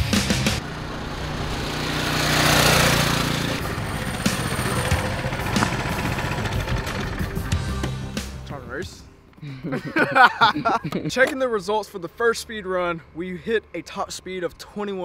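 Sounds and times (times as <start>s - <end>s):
mini bike engine passing by: 0.6s - 7.8s.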